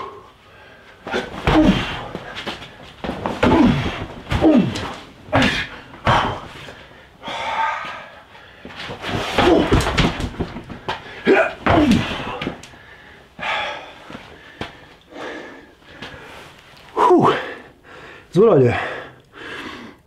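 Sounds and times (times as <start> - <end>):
grunts and hard breathing: 1.0 - 2.7, 3.3 - 8.2
strikes thudding on dummy: 3.0 - 6.5, 9.0 - 12.6.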